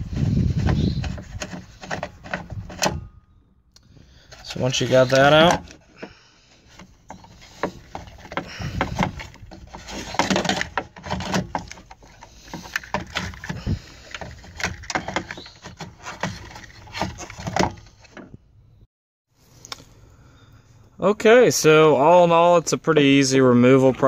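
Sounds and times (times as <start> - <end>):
metal knocks clicks and scrapes: 0.0 - 3.3, 4.3 - 18.4.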